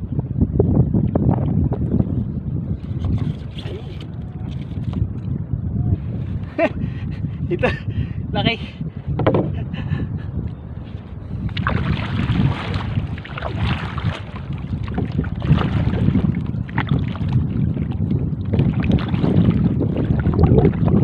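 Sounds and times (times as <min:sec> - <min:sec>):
wind buffeting microphone: 0:00.0 - 0:21.0
water lapping against hull: 0:01.0 - 0:05.2, 0:10.8 - 0:21.0.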